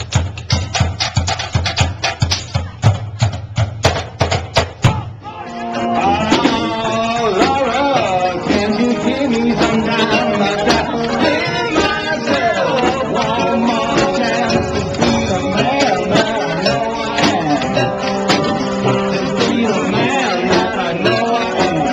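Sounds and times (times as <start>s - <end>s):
sousaphone: 4.8s - 21.9s
strummed guitar: 5.2s - 21.9s.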